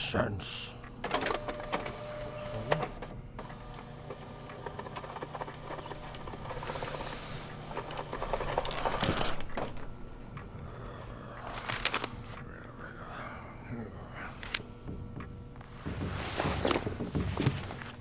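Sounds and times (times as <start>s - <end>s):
fax machine clicking and whirring: 0.8s - 12.5s.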